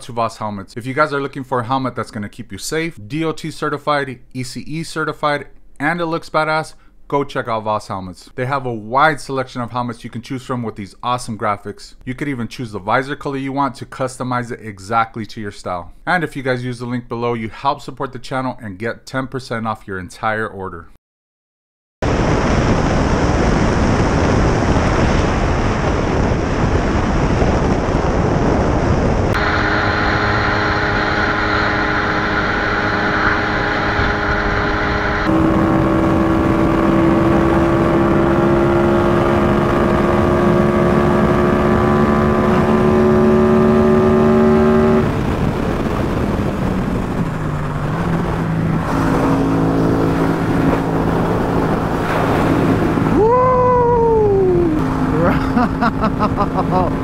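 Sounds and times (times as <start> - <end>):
wind and road rush: 22.1 - 57.0
motorcycle engine: 29.3 - 57.0.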